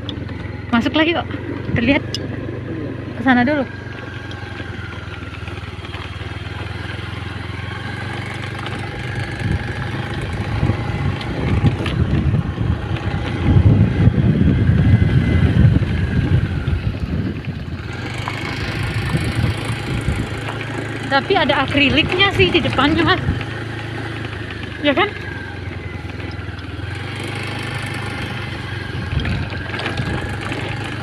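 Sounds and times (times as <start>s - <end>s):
engine running steadily: 0.0s - 31.0s
wind rumbling on microphone: 8.0s - 31.0s.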